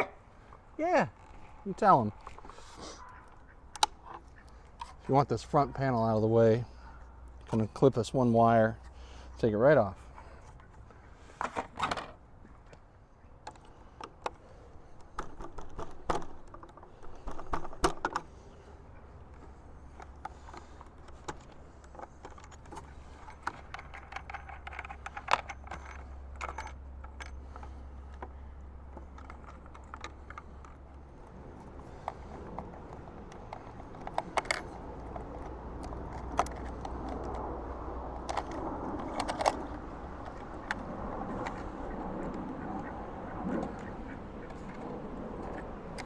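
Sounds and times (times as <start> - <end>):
plastic panel and screws rattling: 11.4 - 12.2, 15.0 - 18.3, 19.4 - 31.0, 31.7 - 37.5, 38.2 - 40.8.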